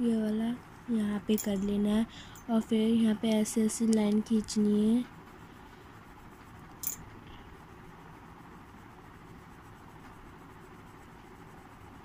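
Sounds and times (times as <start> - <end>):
pen scratching on paper: 3.0 - 12.0.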